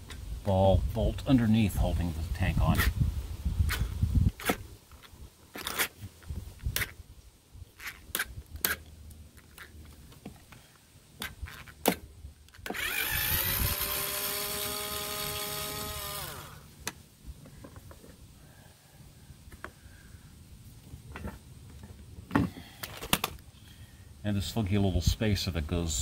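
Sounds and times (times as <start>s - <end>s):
electric screwdriver motor whine: 12.7s - 16.7s.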